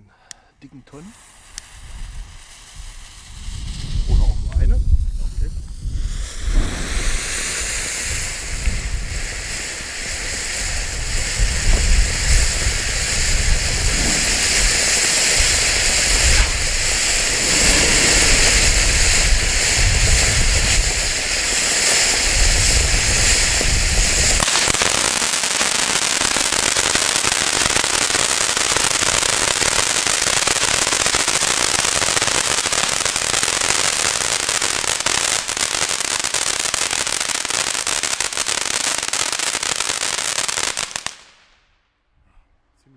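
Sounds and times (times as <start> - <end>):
firework fountain hissing: 0.8 - 41.5
low rumble: 11.4 - 21.1.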